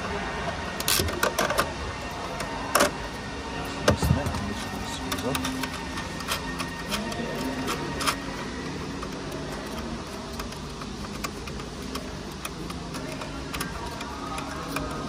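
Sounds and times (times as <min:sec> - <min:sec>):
plastic and metal clicks and scrapes: 0:03.8 - 0:15.0.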